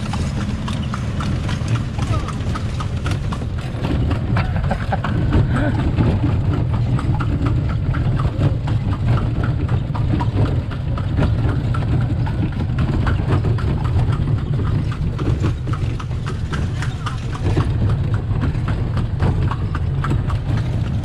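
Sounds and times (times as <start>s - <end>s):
cart wheels rumbling on cobblestones: 0.0s - 21.0s
horse hooves clip-clopping: 0.0s - 21.0s.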